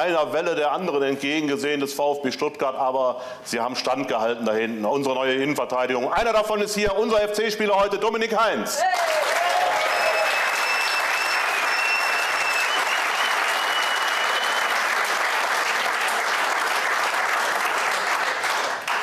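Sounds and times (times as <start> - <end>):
studio audience applauding: 8.8 - 19.0.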